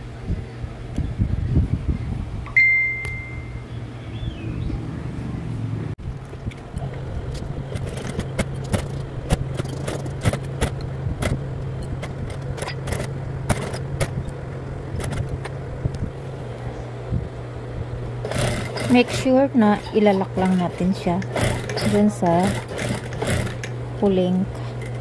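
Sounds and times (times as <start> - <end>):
sewing machine motor humming: 7.6 - 15.6, 18.1 - 25.0
sewing machine metallic clicks: 12.0 - 14.2, 18.2 - 23.8.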